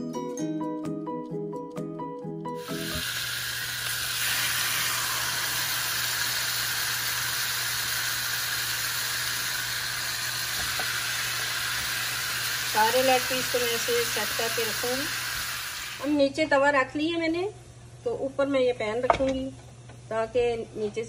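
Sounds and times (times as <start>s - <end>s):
plucked background music: 0.0s - 3.1s
chicken frying in hot oil: 2.6s - 16.1s.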